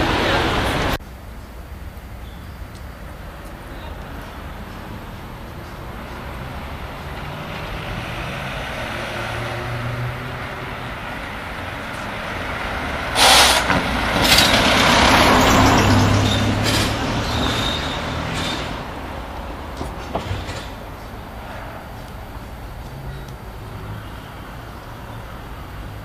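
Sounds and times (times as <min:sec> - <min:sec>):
van driving past: 0:03.6 - 0:26.0
loud burst of noise: 0:13.1 - 0:18.8.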